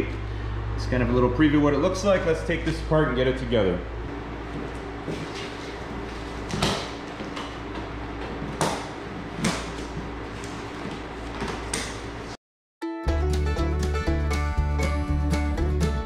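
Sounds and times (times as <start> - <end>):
steady low hum: 0.0 - 12.4.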